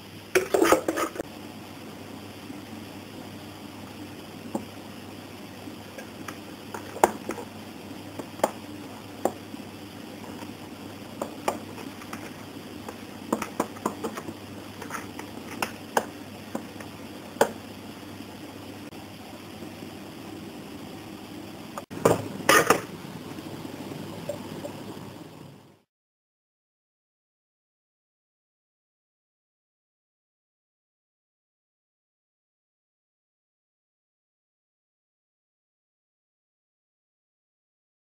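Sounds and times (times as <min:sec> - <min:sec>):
steady background hum: 0:00.0 - 0:25.9.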